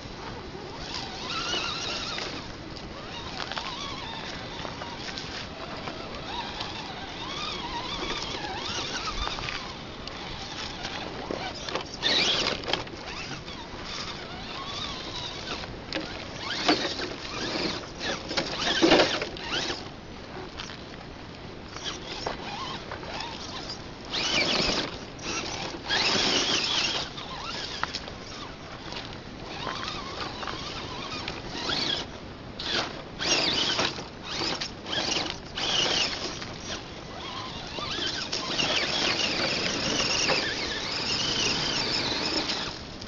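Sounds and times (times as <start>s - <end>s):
electric motor whine: 0.2s - 19.9s, 21.7s - 43.0s
tyres crunching over stones: 0.8s - 21.1s, 21.7s - 43.0s
scraping and rattling: 28.9s - 42.8s.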